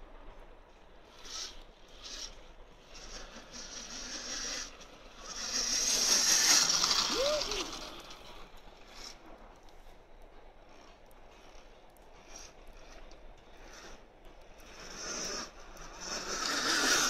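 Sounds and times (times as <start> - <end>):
electric motor whine: 1.0 - 9.1, 14.6 - 17.0.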